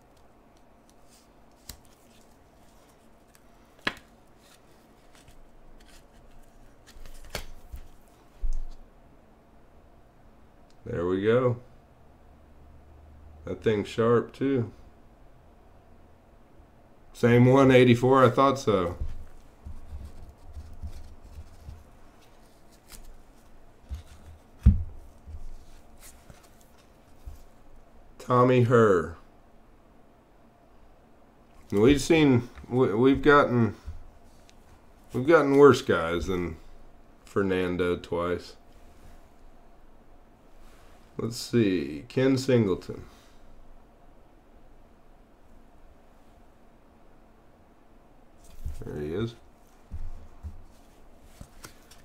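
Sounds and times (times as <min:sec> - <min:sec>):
cardboard cards rustling: 0:00.1 - 0:08.8, 0:18.2 - 0:27.6, 0:31.6 - 0:36.5, 0:48.4 - 0:52.0.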